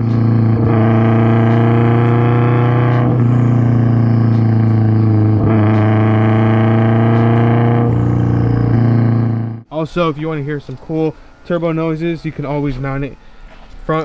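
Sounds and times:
car engine and exhaust drone: 0.0s - 9.7s.

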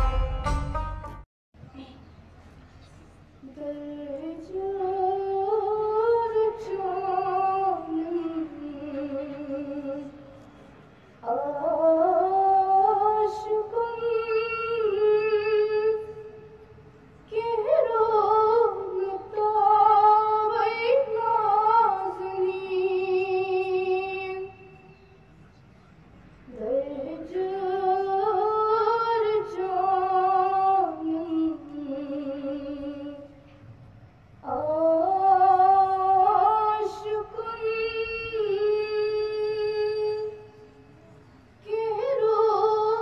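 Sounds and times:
girl singing unaccompanied: 3.4s - 10.2s, 11.2s - 16.4s, 17.3s - 24.7s, 26.5s - 33.4s, 34.4s - 40.5s, 41.6s - 43.0s.

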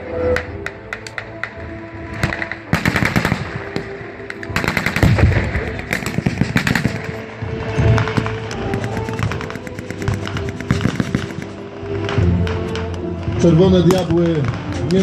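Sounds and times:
automatic gunfire bursts: 2.7s - 3.4s, 4.6s - 5.3s, 5.9s - 7.2s, 8.8s - 11.6s
pyrotechnic blast: 4.5s - 8.4s.

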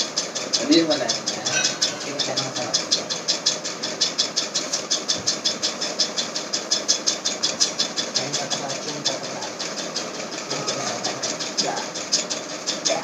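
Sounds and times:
motor running with pulsing hiss: 0.0s - 13.0s.

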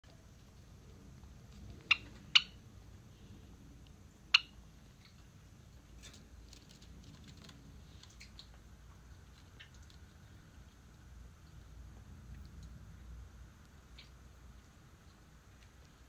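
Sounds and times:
sparrow chip calls: 1.8s - 2.6s
faint light ticks and scratches: 4.9s - 16.0s.

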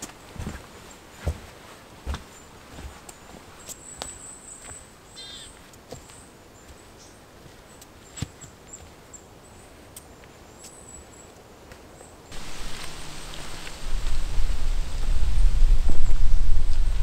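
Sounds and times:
small birds calling: 2.2s - 11.4s.

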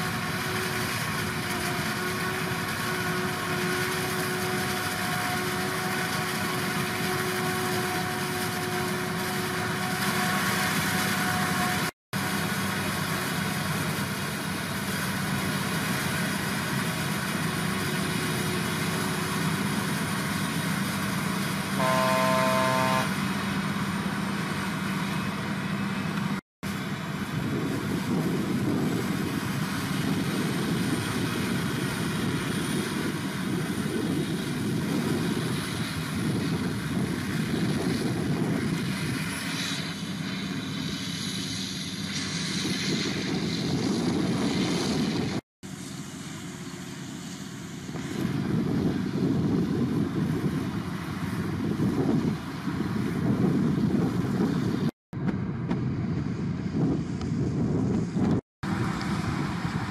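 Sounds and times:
heavy machinery engines running: 0.0s - 59.9s
vehicle horn: 21.8s - 23.2s.

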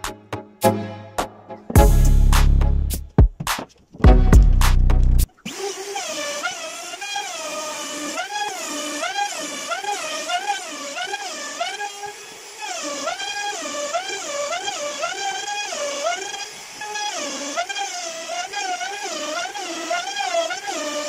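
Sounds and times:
music with a beat: 0.0s - 5.0s
trim router whining: 5.3s - 21.0s.

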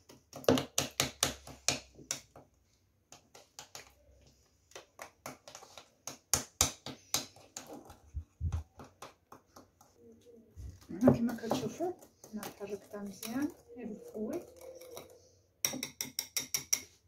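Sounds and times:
utensil scraping ceramic bowl: 11.2s - 17.0s.

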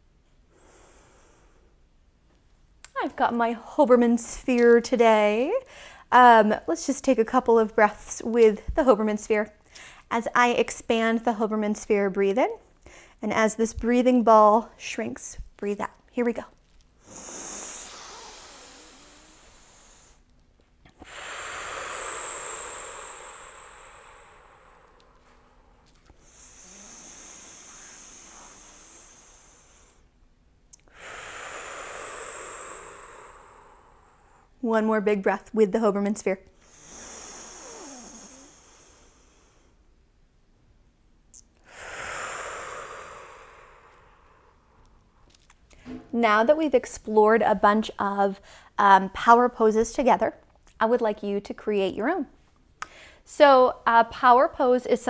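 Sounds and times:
slow breathing: 0.3s - 1.8s, 5.6s - 6.1s, 9.6s - 10.1s, 12.8s - 13.2s, 16.7s - 30.2s, 30.8s - 34.6s, 36.5s - 40.0s, 41.6s - 46.1s, 48.4s - 48.8s, 52.8s - 53.3s.

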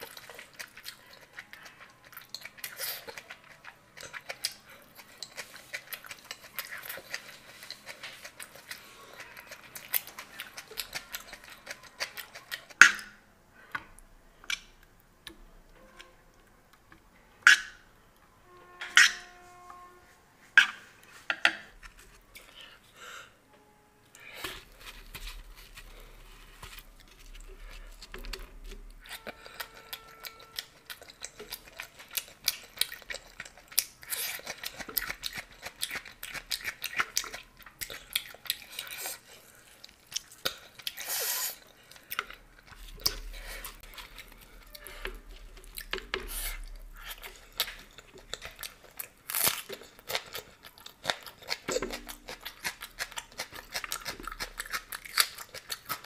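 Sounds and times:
person chewing and crunching: 0.0s - 13.0s, 24.2s - 56.0s.

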